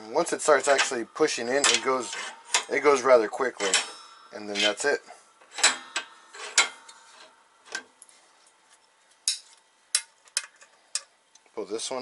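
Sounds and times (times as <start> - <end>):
metal clanks from bench vise: 0.4 - 7.9.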